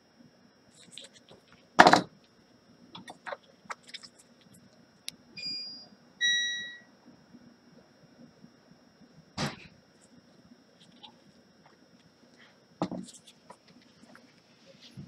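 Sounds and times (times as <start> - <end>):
short beeps: 5.4 - 6.9.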